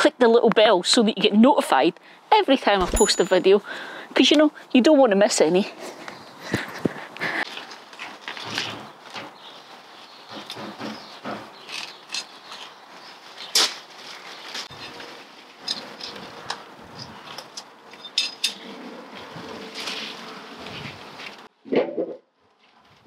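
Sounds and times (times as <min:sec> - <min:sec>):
rustling and scraping in soil: 0:05.7 - 0:17.4, 0:18.6 - 0:21.5.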